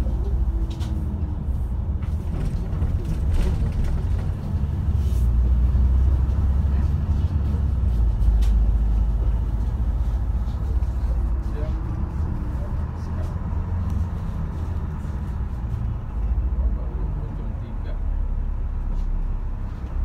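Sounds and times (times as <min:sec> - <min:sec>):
bus engine and road rumble: 0:00.0 - 0:20.0.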